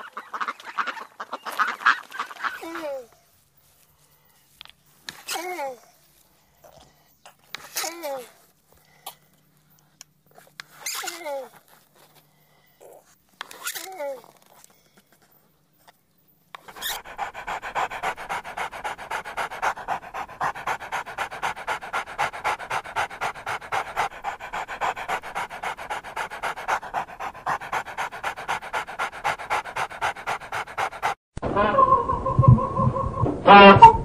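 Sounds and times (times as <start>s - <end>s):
dog panting: 16.6s - 31.2s.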